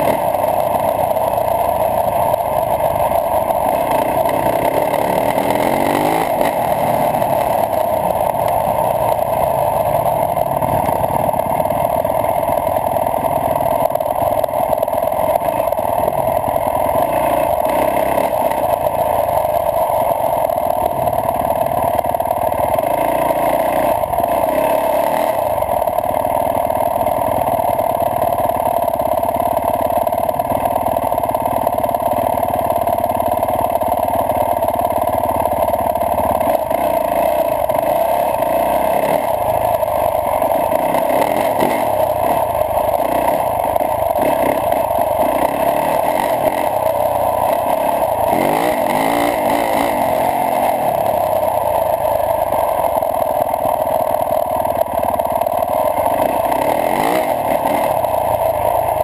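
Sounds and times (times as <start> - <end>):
dirt bike engine revving: 0.0 - 13.8, 14.5 - 19.4, 22.5 - 25.9, 36.1 - 52.9, 54.7 - 59.0.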